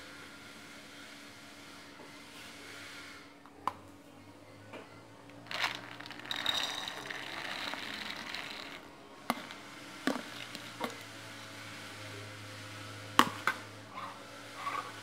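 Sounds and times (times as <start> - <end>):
beans poured into a bowl: 5.4 - 11.5.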